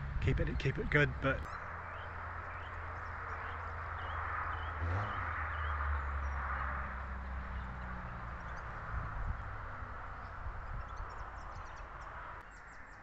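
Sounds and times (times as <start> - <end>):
low steady rumble: 0.0 - 12.2
small bird chirping: 7.2 - 13.0.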